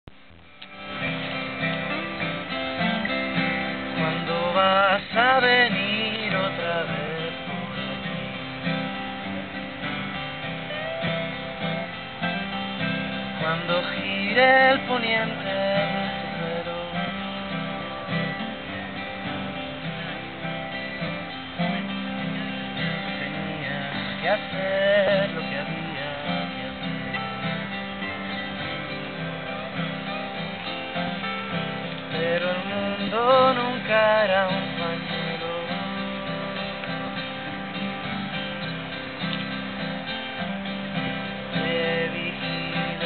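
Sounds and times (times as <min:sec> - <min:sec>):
acoustic guitar strumming: 0:00.0 - 0:43.0
person singing: 0:03.7 - 0:08.6, 0:32.1 - 0:37.4, 0:41.4 - 0:43.0.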